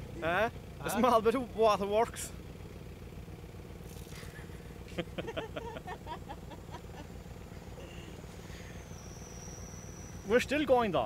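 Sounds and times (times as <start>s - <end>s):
small engine idling: 0.0s - 11.0s
man laughing: 4.3s - 7.2s.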